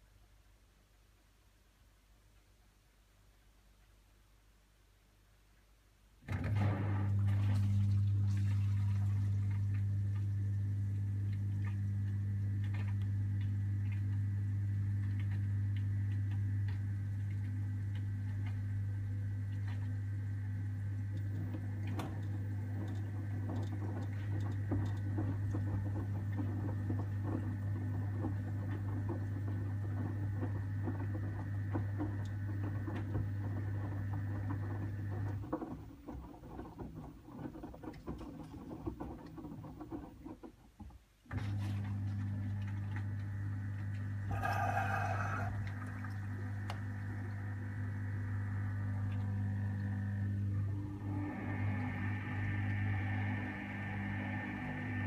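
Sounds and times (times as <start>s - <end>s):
washing machine drum motor hum: 6.3s - 55.0s
water and clothes pattering: 7.2s - 9.8s, 45.3s - 47.1s.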